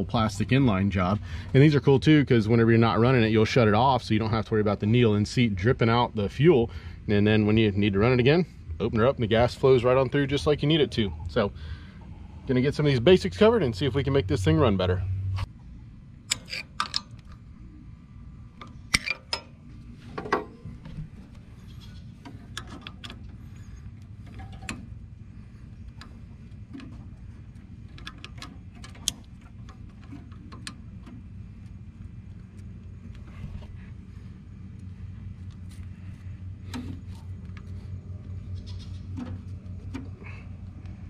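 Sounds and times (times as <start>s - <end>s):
low steady hum: 0.0s - 41.0s
clicks and light metal knocks: 18.5s - 25.0s, 25.6s - 33.9s, 36.6s - 41.0s.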